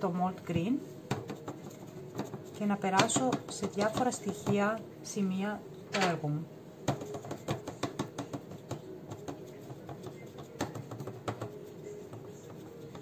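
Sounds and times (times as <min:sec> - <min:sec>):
paintbrush clicking and tapping: 0:06.9 - 0:13.0.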